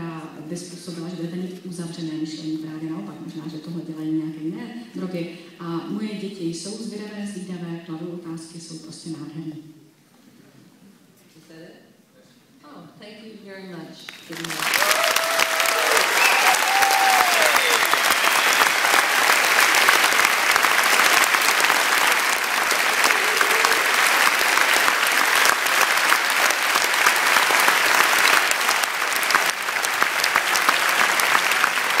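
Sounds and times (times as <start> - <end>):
audience applauding: 14.1 - 32.0.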